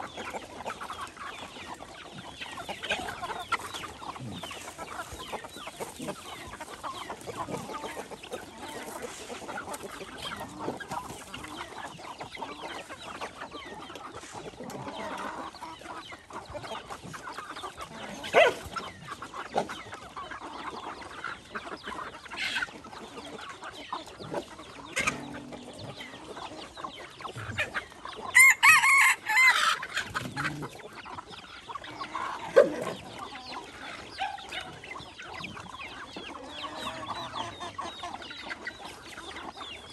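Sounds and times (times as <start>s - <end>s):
chickens clucking: 0.0s - 39.9s
rooster crowing: 28.4s - 29.7s.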